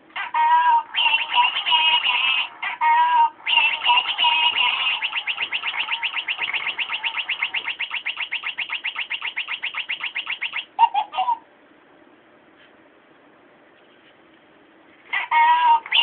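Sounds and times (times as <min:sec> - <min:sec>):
toy mouse electronic chirping: 0:00.9 - 0:02.5, 0:03.4 - 0:11.4.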